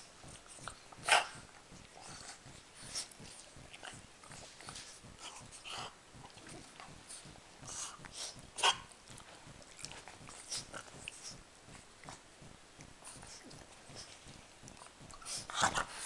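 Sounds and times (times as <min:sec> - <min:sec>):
dog mouth noises: 0:00.2 - 0:16.0
dogs grunting: 0:01.0 - 0:09.0.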